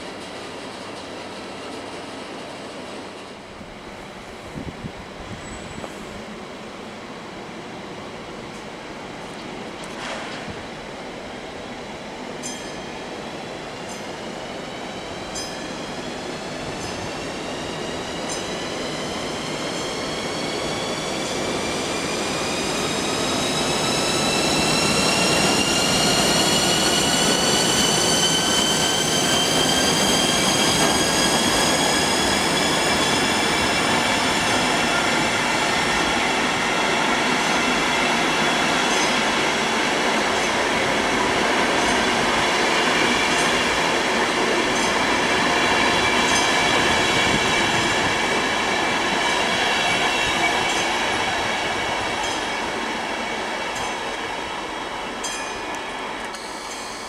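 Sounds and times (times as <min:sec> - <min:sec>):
train wheels rumbling: 0:08.4 - 0:57.0
high squealing wheel tones: 0:22.1 - 0:33.6.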